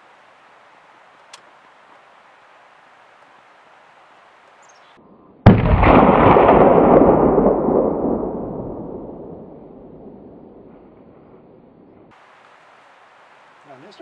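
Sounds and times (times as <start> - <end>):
rifle shot with rolling report: 5.4 - 12.1.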